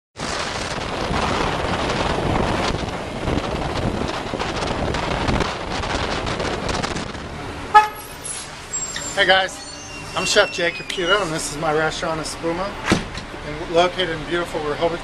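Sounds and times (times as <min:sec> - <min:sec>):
wind buffeting microphone: 0:00.2 - 0:08.7.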